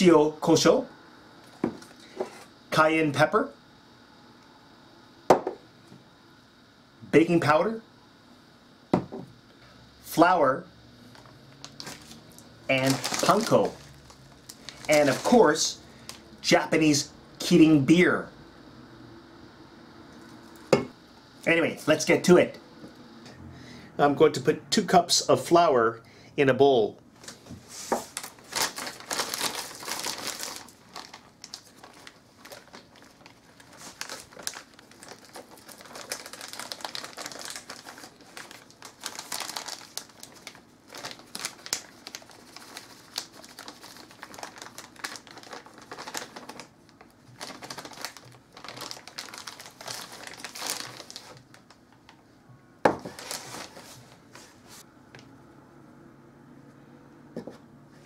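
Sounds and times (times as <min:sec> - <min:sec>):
plastic bag crinkling: 0:11.1 - 0:16.3, 0:28.1 - 0:52.2, 0:52.9 - 0:54.0.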